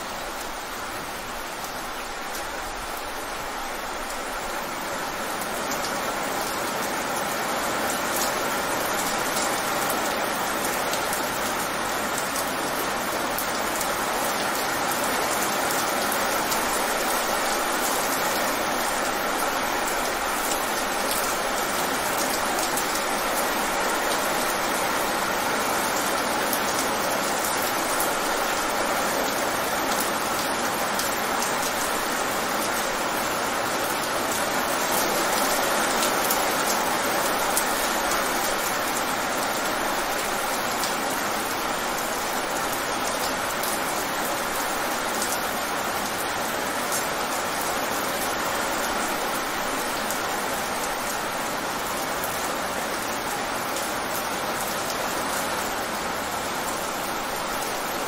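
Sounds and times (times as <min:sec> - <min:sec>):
rain on wet pavement: 0:00.0 - 0:58.0.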